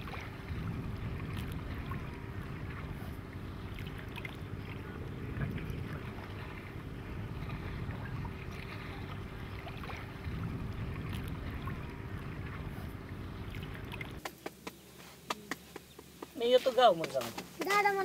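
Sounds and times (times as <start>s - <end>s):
wind rumbling on microphone: 0.0s - 14.3s
water lapping: 0.0s - 18.0s.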